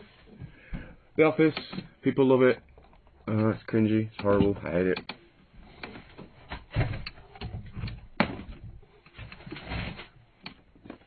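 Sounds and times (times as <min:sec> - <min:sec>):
cardboard rustling: 0:07.6 - 0:10.2.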